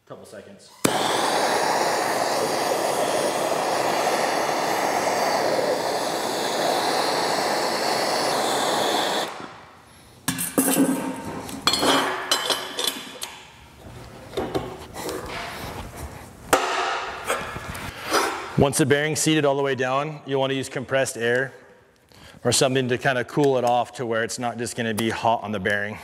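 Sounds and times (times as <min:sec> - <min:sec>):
gas torch hissing: 0:00.7 - 0:10.2.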